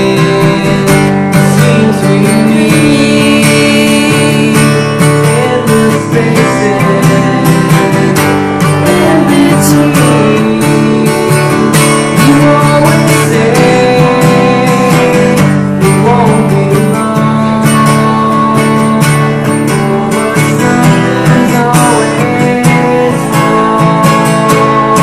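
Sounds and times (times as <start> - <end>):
strummed acoustic guitar music: 0.0 - 25.0.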